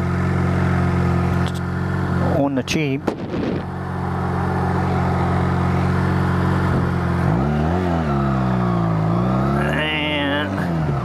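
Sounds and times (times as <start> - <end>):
motorcycle engine idling and revving: 0.0 - 11.0.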